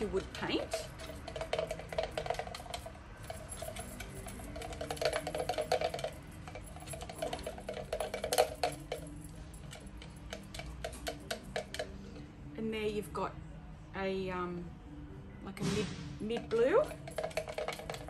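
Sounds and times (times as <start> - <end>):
brush scraping glass jar: 0.0 - 11.7, 16.9 - 18.0
brush tapping glass: 0.9 - 9.1.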